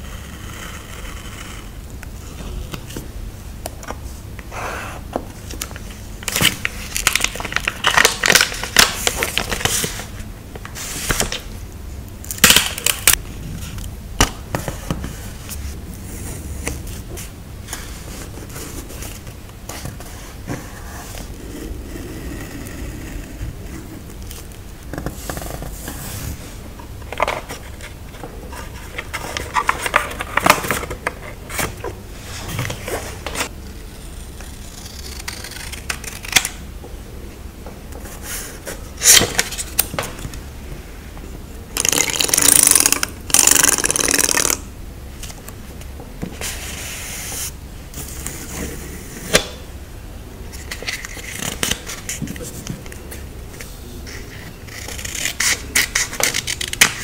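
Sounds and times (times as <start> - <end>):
paper crinkling and rustling: 5.6 - 10.1.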